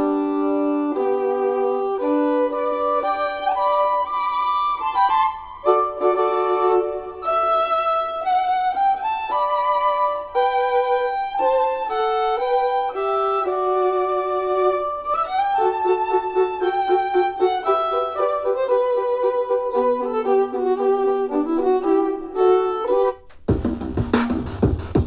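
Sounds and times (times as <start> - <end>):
instrumental music through speakers: 21.3 - 25.0.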